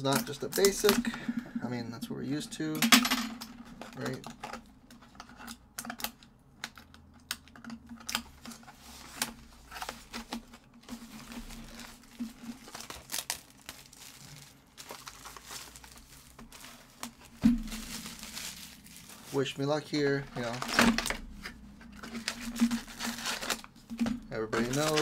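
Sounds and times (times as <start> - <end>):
packaging crinkling and tearing: 7.9 - 25.0.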